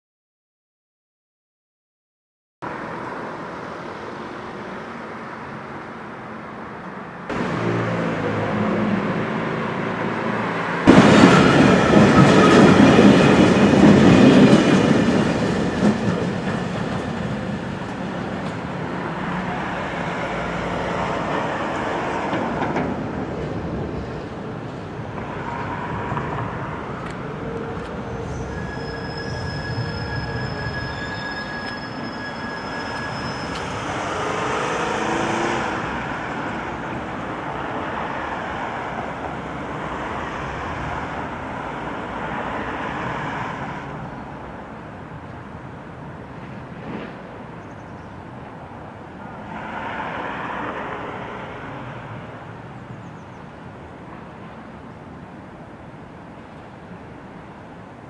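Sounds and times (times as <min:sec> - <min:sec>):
trains running through station: 0:02.7 - 0:58.0
high-pitched squeal: 0:25.3 - 0:36.0.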